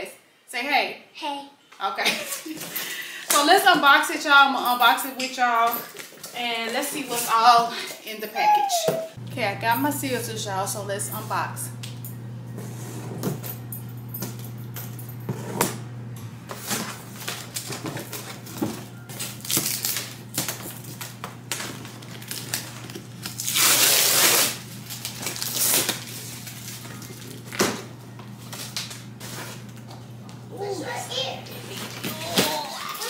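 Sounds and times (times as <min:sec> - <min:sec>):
steady low hum: 0:09.2 - 0:32.0.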